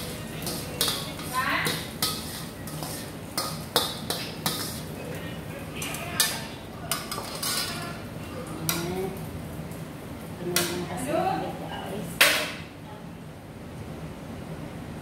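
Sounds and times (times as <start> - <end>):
metal utensils clanking on pot: 0.0 - 4.9, 5.8 - 8.0.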